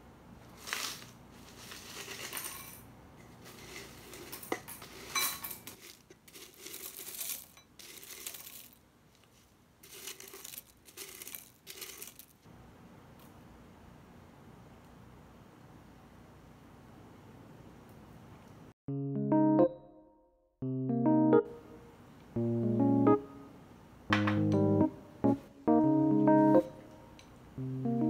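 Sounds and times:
cereal flakes pouring into glass bowl: 0.6 - 2.8, 3.4 - 8.8, 9.8 - 12.4
scoop clinking against bowl: 2.0 - 8.7.

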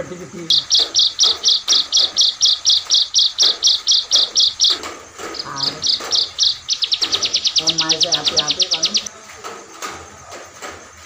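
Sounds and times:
songbird singing high sharp notes: 0.4 - 9.1.

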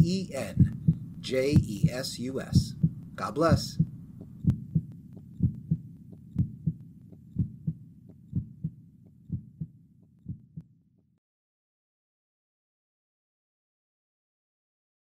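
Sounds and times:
heartbeat thumps: 0.0 - 10.7.

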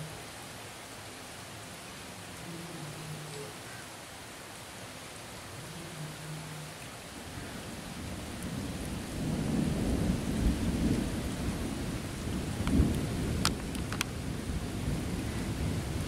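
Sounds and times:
steady rain: 0.0 - 16.0
rolling thunder: 8.0 - 16.0.

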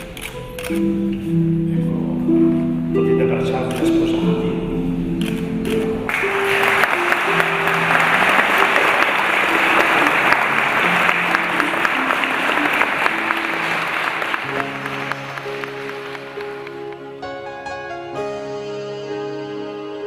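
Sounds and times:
soft plucked-string music: 0.4 - 6.1
congregation applauding: 6.0 - 17.3.

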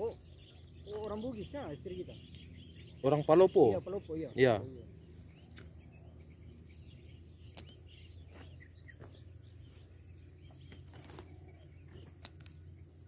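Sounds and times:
faint chirps: 0.0 - 13.0
high-pitched insect drone: 0.0 - 13.0
small clicks: 5.5 - 5.7, 12.0 - 12.6.

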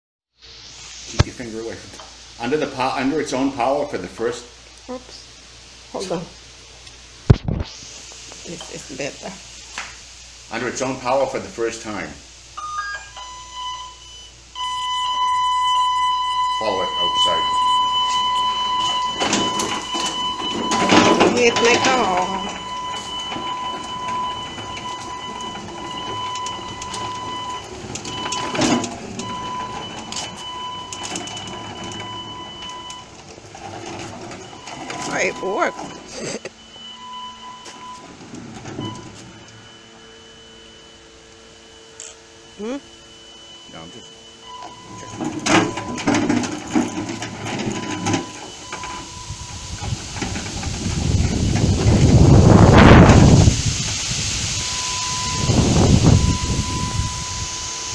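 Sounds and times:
electric motors whining: 14.5 - 53.7, 54.4 - 57.9
irregular clicks and rattles: 18.9 - 36.1, 45.0 - 49.1.

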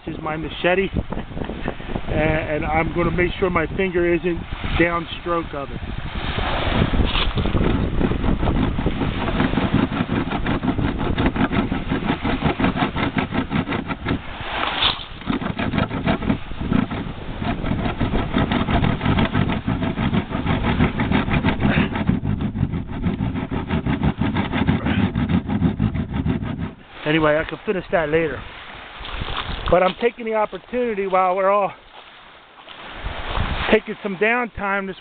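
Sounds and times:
machete sawing through wood: 6.4 - 27.2.

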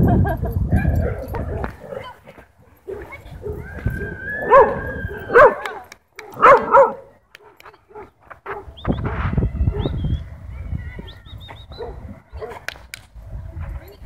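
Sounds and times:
dog yelping: 2.9 - 7.0
dog whining: 3.4 - 5.6.

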